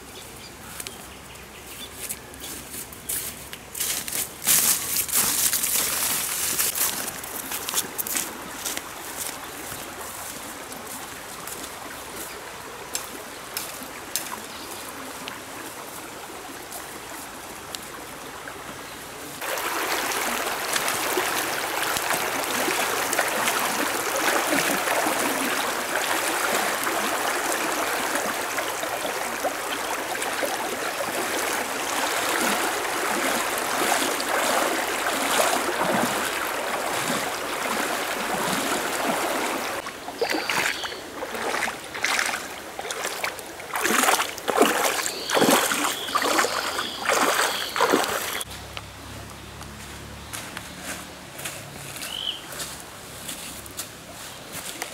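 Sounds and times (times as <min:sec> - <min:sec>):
stream flowing over stones: 0:03.8 - 0:50.1
water splashing from wading: 0:19.3 - 0:48.6.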